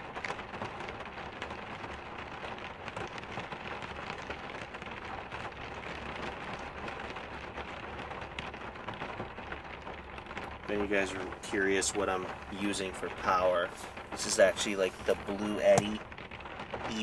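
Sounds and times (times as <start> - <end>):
heavy rain on vehicle roof: 0.0 - 17.0.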